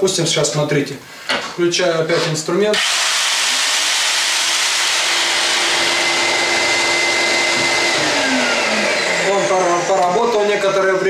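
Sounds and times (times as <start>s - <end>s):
power tool motor whining: 2.8s - 11.0s
vacuum cleaner suction: 2.8s - 11.0s.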